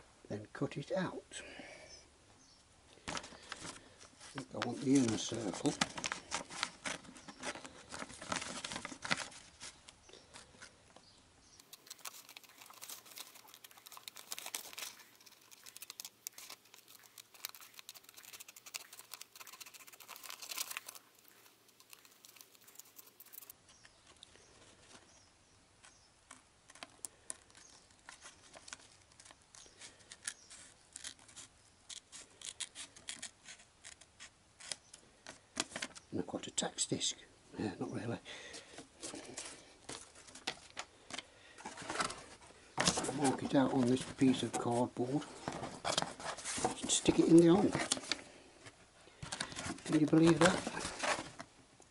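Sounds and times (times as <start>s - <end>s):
scissors snipping paper: 11.6s - 23.5s.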